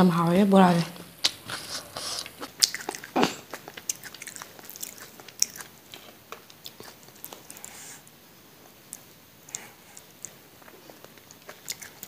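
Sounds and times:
chewing crunchy raw vegetables: 0:01.2 - 0:07.7, 0:09.6 - 0:12.0.

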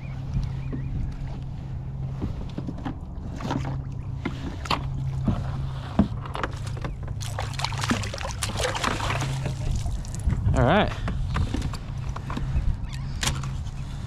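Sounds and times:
steady low hum: 0:00.0 - 0:14.0
fish splashing: 0:06.6 - 0:10.3.

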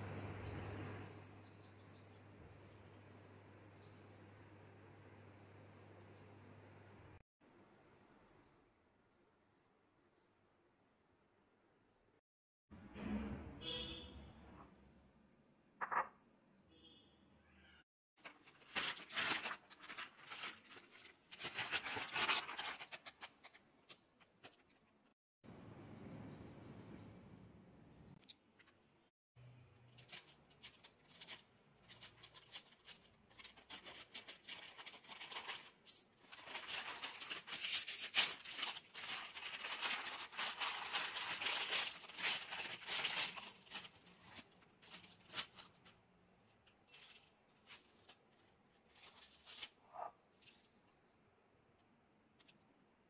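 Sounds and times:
plastic packet crinkling: 0:18.2 - 0:24.8, 0:29.9 - 0:49.8.

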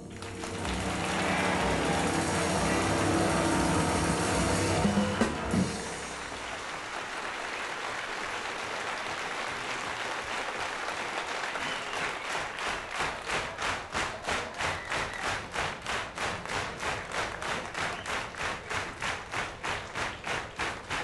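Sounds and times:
drum accents: 0:00.0 - 0:06.5
audience applause: 0:00.0 - 0:21.0
rhythmic clapping: 0:00.0 - 0:21.0.

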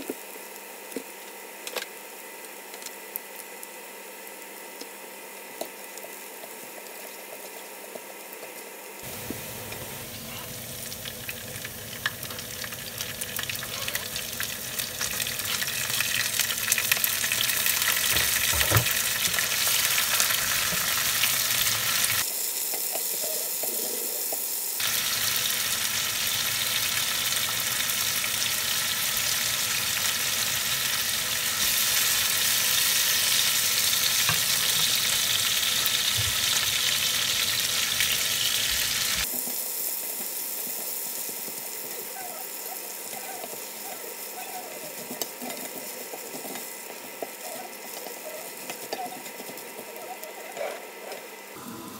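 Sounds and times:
garlic and chillies sizzling in oil: 0:09.0 - 0:50.6.

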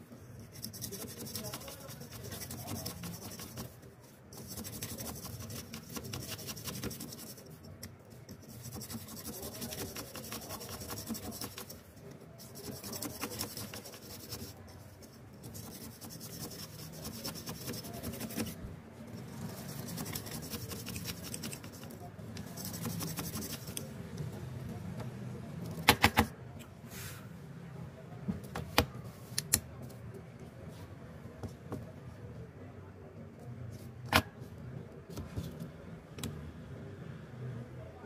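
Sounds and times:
toothbrush scrubbing fan: 0:00.4 - 0:18.6, 0:19.2 - 0:23.9.

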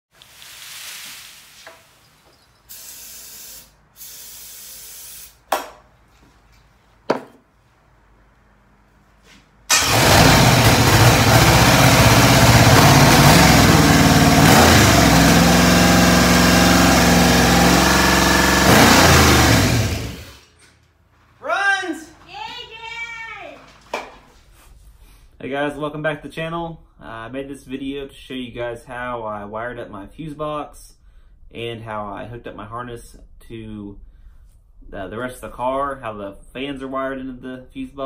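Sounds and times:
short steady hisses: 0:00.2 - 0:05.4
car engine running: 0:09.7 - 0:20.4.

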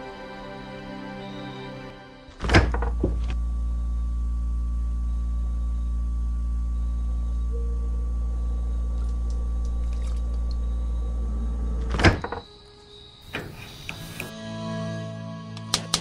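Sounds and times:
refrigerator hum: 0:02.3 - 0:13.6
refrigerator door thumping shut: 0:02.4 - 0:03.2.

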